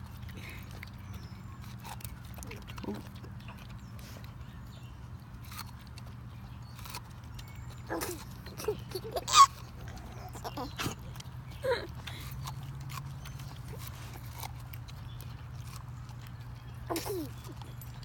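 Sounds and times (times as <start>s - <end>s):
dog crunching corn cob: 0.0s - 18.0s
baby squealing laughs: 7.9s - 10.9s.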